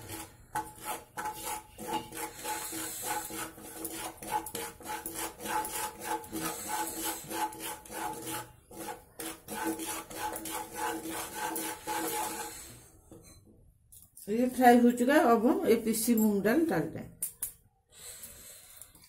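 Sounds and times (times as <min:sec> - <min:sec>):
flour frying in ghee: 0:00.0 - 0:12.8
wooden spatula scraping and stirring: 0:00.0 - 0:13.7.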